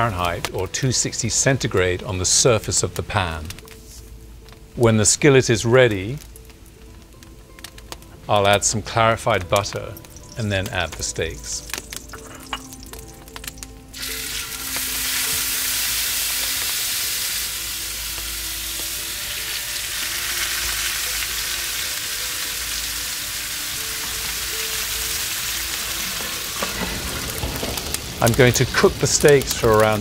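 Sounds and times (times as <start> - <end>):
steaks sizzling in a hot skillet: 9.6 - 30.0.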